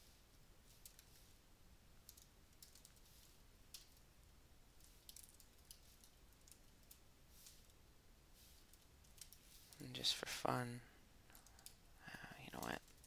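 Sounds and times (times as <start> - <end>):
computer keyboard typing: 2.0 - 4.0, 4.8 - 7.0, 8.7 - 9.4, 11.3 - 11.8, 12.6 - 13.0.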